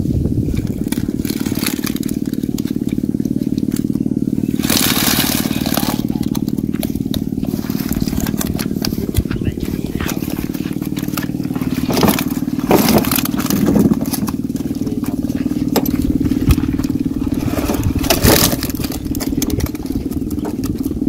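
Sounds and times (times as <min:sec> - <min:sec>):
engine humming: 0:00.0 - 0:21.0
nets rustling and scraping: 0:00.5 - 0:02.8, 0:04.6 - 0:06.4.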